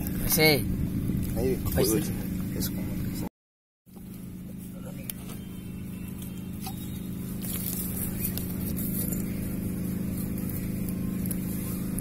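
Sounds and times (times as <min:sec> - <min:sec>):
engine humming steadily: 0:00.0 - 0:03.3, 0:03.9 - 0:12.0.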